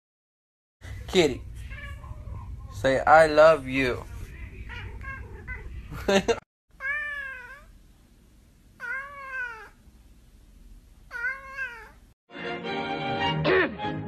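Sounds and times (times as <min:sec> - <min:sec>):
cat meowing: 0:01.6 - 0:02.4, 0:04.7 - 0:05.7, 0:06.8 - 0:07.7, 0:08.8 - 0:09.8, 0:11.1 - 0:12.0
music: 0:12.3 - 0:14.0.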